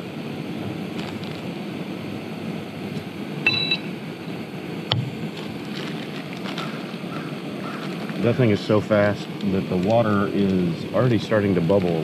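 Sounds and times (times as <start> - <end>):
gas burner running: 0.0 - 12.0
short electronic beep: 3.4 - 3.9.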